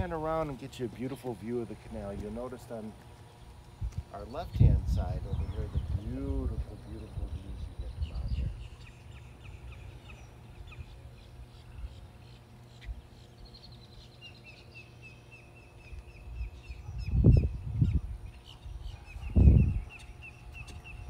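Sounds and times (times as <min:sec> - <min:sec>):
low steady hum: 0:00.0 - 0:21.0
loud low rumbles: 0:03.8 - 0:08.7
bird chirping: 0:05.2 - 0:21.0.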